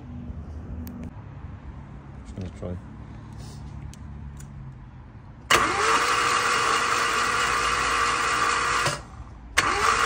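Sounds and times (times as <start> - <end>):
starter motor cranking engine: 5.5 - 10.0.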